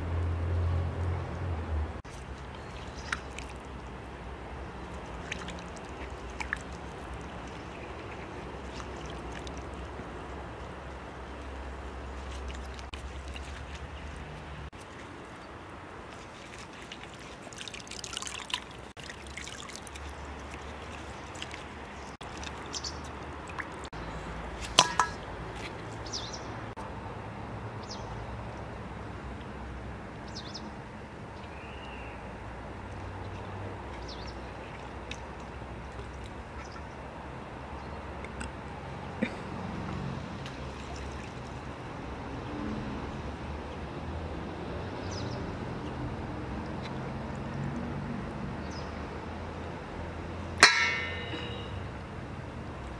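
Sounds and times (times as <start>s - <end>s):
water dripping off chicken: 2.0s - 24.0s, 24.6s - 26.2s, 39.2s - 41.8s, 45.8s - 49.0s, 50.6s - 52.0s
water sloshing in a basin: 2.0s - 26.8s, 32.6s - 37.5s, 38.1s - 43.1s, 45.3s - 52.9s.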